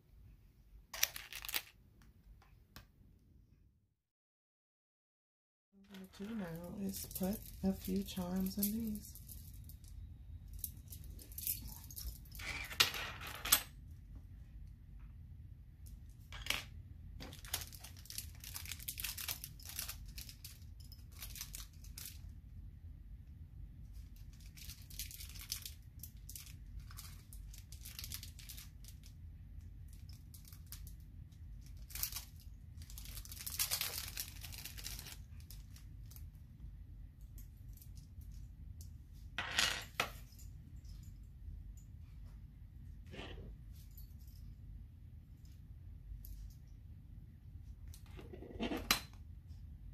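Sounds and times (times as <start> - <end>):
beads rustling and clicking: 0.9 - 1.8, 17.2 - 22.3, 24.2 - 29.1, 29.9 - 36.3.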